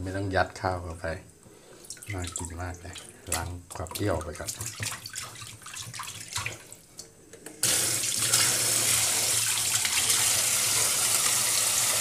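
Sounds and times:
tap water pouring into basin: 1.8 - 6.8, 7.6 - 12.0
small splashes: 1.8 - 7.0.

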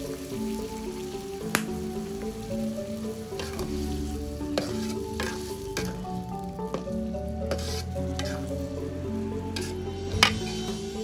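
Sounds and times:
food sizzling in hot oil: 0.0 - 11.0
soft background music: 0.0 - 11.0
spoon scraping a pan: 3.3 - 11.0.

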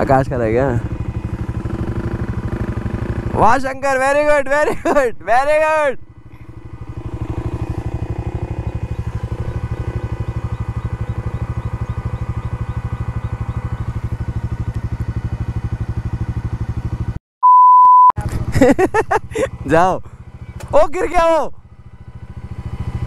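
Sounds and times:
motorcycle engine idling: 0.0 - 17.2, 18.2 - 23.0.

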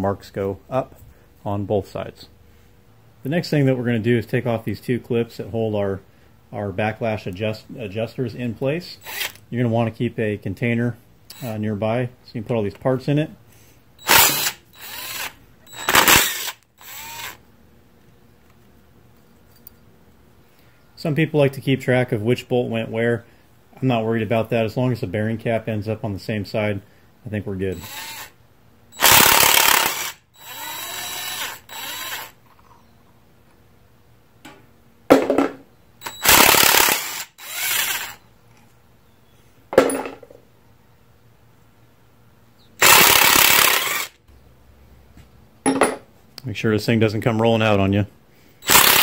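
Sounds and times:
driver motor whining: 9.0 - 9.4, 11.3 - 11.6, 14.0 - 17.4, 27.8 - 28.4, 29.0 - 32.4, 36.0 - 38.2, 42.8 - 44.1, 48.6 - 49.0
impact driver hammering: 15.7 - 16.4
impact wrench hammering: 45.7 - 46.1.

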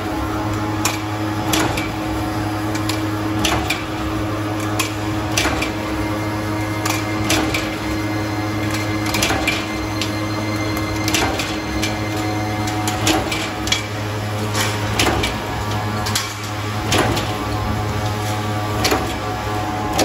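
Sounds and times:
machine motor hum: 0.0 - 20.0
steel strip feeding through rollers: 0.0 - 20.0.

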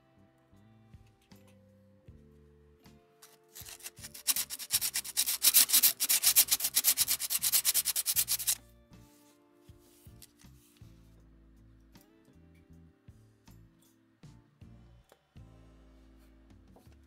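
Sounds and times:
sandpaper scratching strokes: 3.2 - 8.6.

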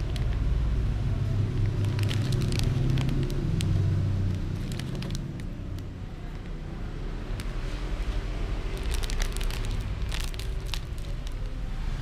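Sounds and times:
foil snack packet crinkling: 0.0 - 0.6, 1.4 - 5.9, 8.6 - 11.7
low motor rumble: 0.0 - 12.0.

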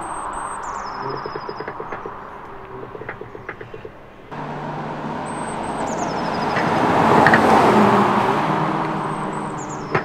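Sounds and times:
artificial engine sound: 4.3 - 10.0
car driving past: 4.3 - 10.0.

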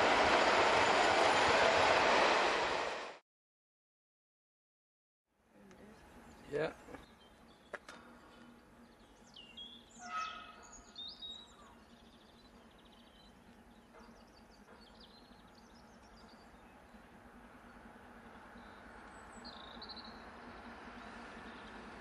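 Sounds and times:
small birds chirping: 5.6 - 22.0.

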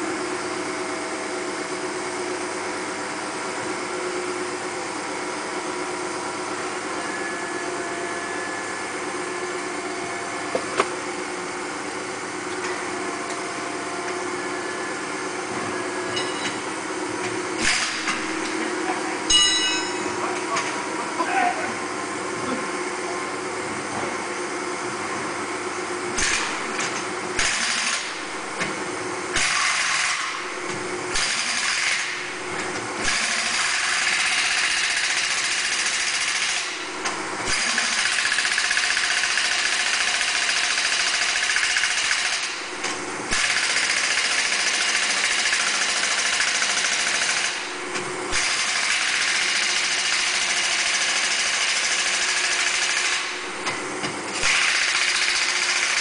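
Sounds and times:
tire changer motor and pump: 0.0 - 21.0, 21.8 - 56.0
low machine hum: 0.0 - 31.2, 32.0 - 34.7, 36.5 - 37.5, 42.5 - 43.6, 47.5 - 48.4.

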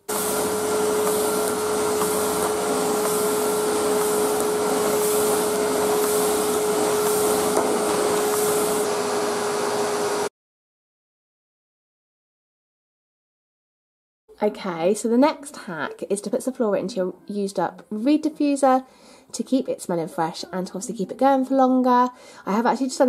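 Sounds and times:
vacuum cleaner running: 0.0 - 10.3.

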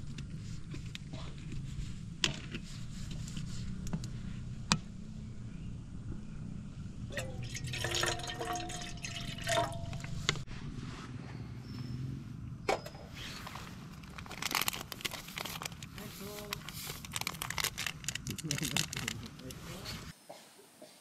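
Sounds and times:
low hum: 0.0 - 12.7
water sloshing in a container: 7.1 - 10.4.

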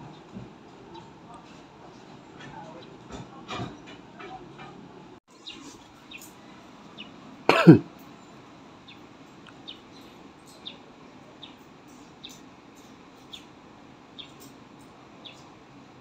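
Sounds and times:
person coughing: 7.5 - 7.9.

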